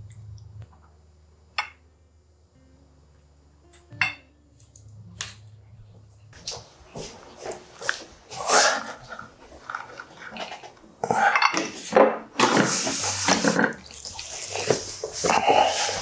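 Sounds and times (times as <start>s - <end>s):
ceramic dishes clinking: 4.0s - 4.3s.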